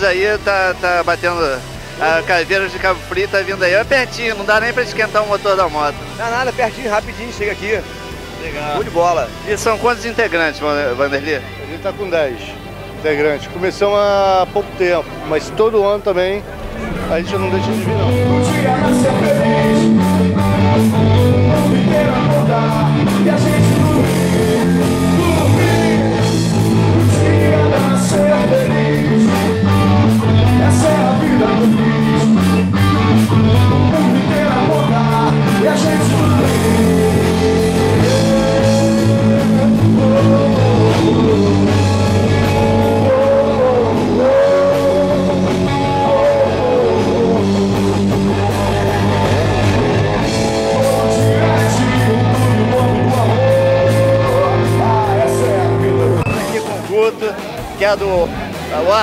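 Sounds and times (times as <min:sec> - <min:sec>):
drums: 0:00.0 - 0:13.0, 0:13.8 - 0:59.0
bass guitar: 0:00.0 - 0:59.0
electric guitar: 0:00.0 - 0:59.0
person singing: 0:16.6 - 0:32.7, 0:33.3 - 0:56.8.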